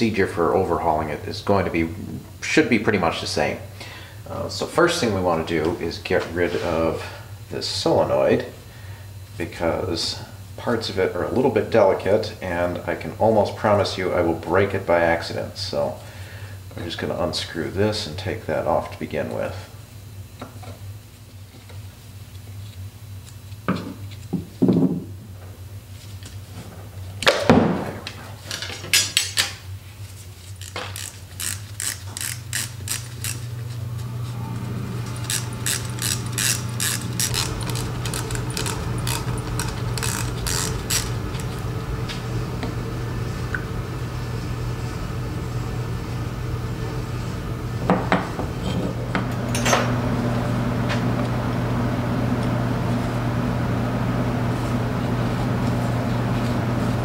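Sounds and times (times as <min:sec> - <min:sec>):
steady hum: 0:29.5 - 0:57.0
socket ratchet clicking: 0:30.6 - 0:33.4, 0:35.2 - 0:41.1.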